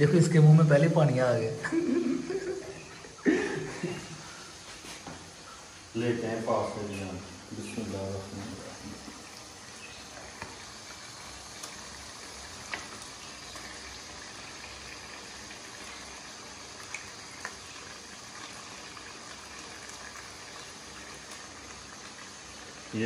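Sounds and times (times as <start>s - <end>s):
masala sizzling in a pan: 0.0s - 23.0s.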